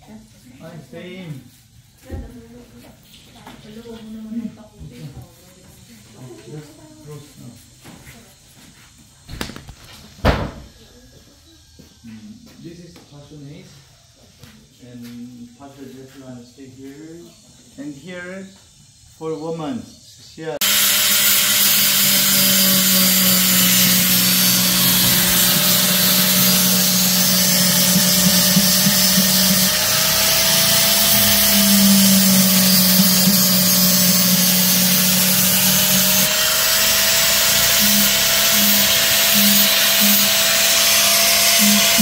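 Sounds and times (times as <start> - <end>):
angle grinder grinding wood: 20.6 - 42.0.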